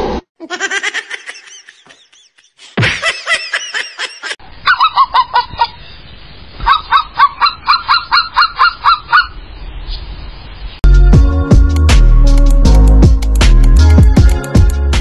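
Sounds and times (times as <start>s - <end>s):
husky yipping: 4.6s - 5.8s, 6.6s - 9.4s.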